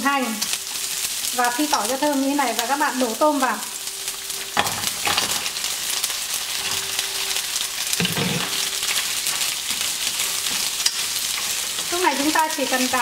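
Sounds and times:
food sizzling in hot oil: 0.0s - 13.0s
chopsticks stirring: 4.1s - 13.0s.

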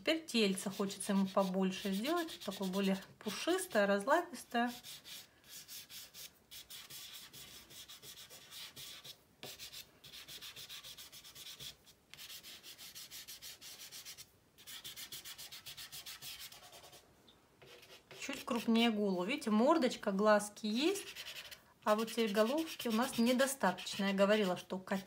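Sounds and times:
pastel scratching on paper: 0.5s - 3.0s, 4.4s - 17.0s, 17.6s - 18.7s, 20.9s - 24.7s.

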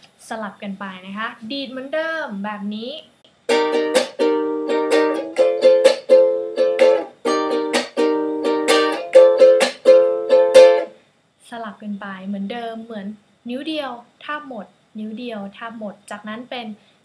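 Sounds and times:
ukulele strummed: 3.5s - 11.0s.

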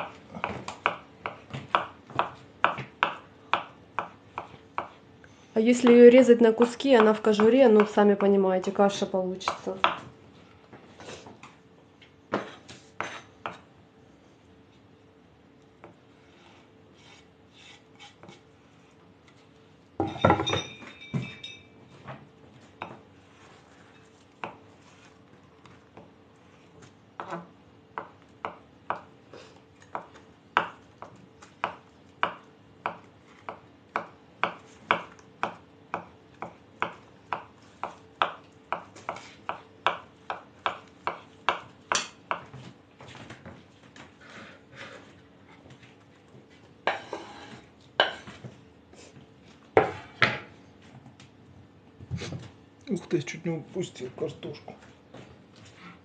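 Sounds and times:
knife chopping on wooden board: 0.0s - 5.0s, 9.5s - 10.1s, 12.3s - 13.7s, 24.4s - 24.7s, 29.8s - 42.8s, 46.8s - 48.5s, 49.8s - 50.5s.

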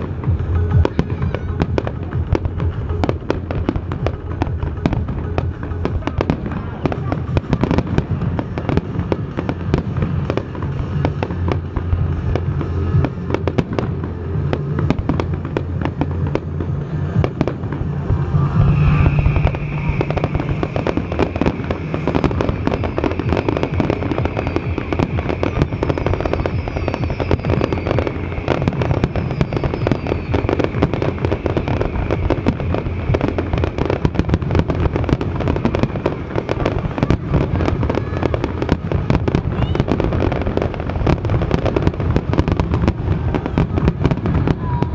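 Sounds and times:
high steady tone: 0.0s - 9.7s
fireworks bursting and crackling: 0.0s - 44.9s.

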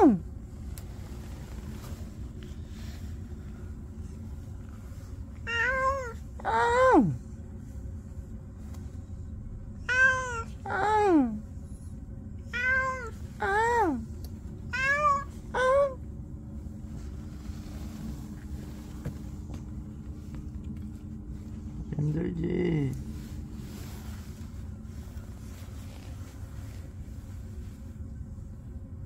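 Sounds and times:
cat meowing: 5.4s - 6.9s, 9.8s - 11.0s, 12.5s - 14.0s, 14.7s - 16.0s.

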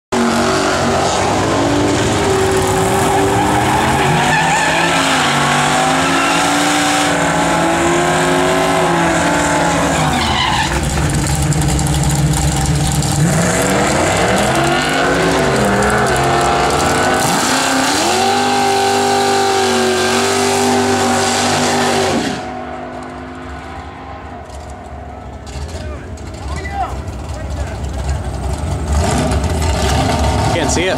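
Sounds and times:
engine revving hard: 0.2s - 10.8s, 13.1s - 22.5s, 28.8s - 30.9s
tyre squeal: 2.2s - 7.1s, 9.0s - 11.2s.

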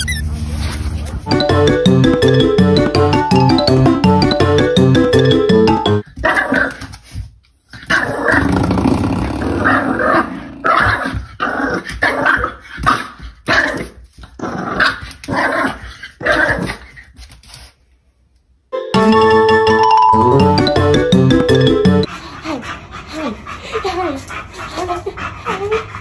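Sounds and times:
music: 1.3s - 6.0s, 18.8s - 22.1s
puppy growling and barking: 6.2s - 6.8s, 7.8s - 16.9s.

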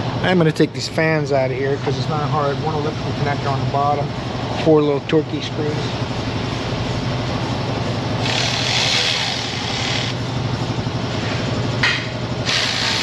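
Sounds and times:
steady low hum: 0.0s - 13.0s
power driver whirring: 8.2s - 10.2s, 12.4s - 13.0s.

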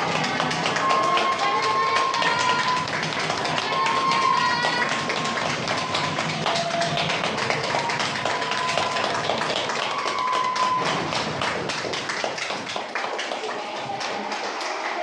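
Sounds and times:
crowd clapping: 0.0s - 15.0s.

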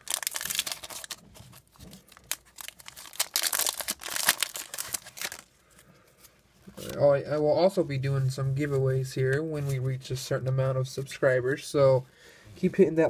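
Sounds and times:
foil wrapper crinkling: 0.0s - 5.5s.

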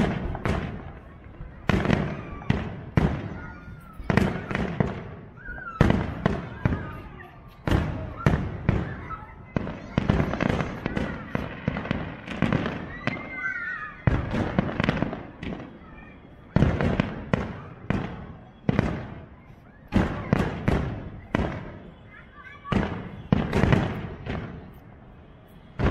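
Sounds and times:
fireworks bursting: 0.0s - 25.9s.

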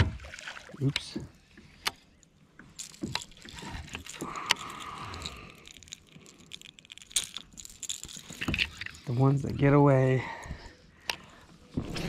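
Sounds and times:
lure hooks clicking and jingling: 2.6s - 9.7s.

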